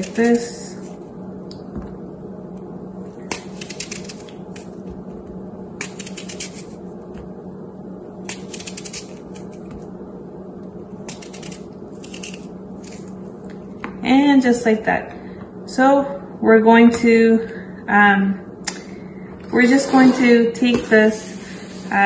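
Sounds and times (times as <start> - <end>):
knife crunching through apple: 11.0 - 13.1.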